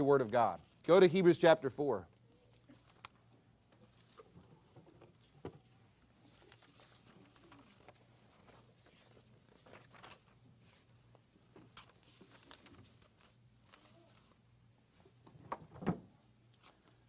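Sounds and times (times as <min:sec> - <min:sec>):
paper rustling: 0:02.2 - 0:03.2, 0:03.8 - 0:14.5
pages turning: 0:02.5 - 0:03.2, 0:03.8 - 0:14.5, 0:16.5 - 0:17.0.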